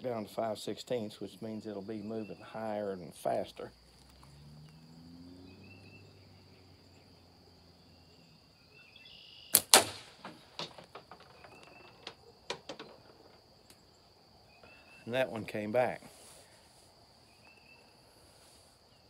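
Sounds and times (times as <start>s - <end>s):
high insect drone: 0.1s - 19.0s
slingshot bands snapping: 9.5s - 10.4s
ball bouncing clicks: 9.6s - 13.4s.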